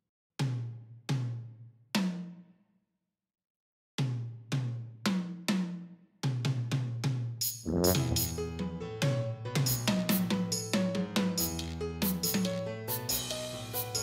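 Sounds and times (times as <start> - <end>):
burst of music: 7.7 - 8.6.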